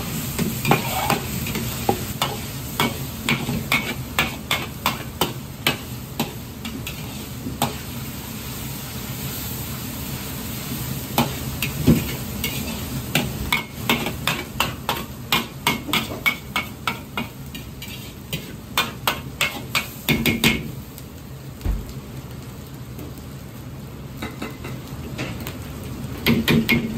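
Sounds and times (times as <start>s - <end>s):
pork sizzling in a wok: 0.0s - 26.9s
metal ladle scraping wok: 0.6s - 2.4s.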